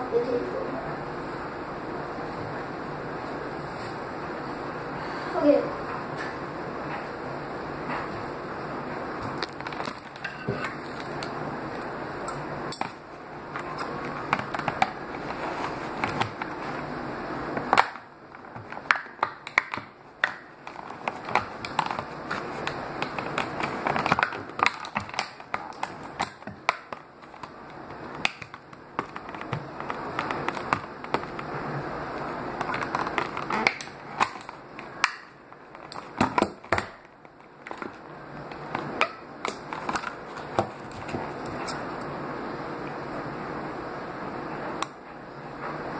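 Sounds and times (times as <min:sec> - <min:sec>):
packaging rustling: 0:09.2 - 0:12.0, 0:12.7 - 0:42.0.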